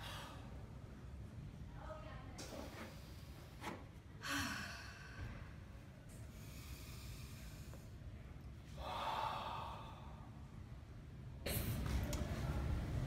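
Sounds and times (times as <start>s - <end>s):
slow deep breathing: 4.2s - 8.1s, 8.7s - 10.5s.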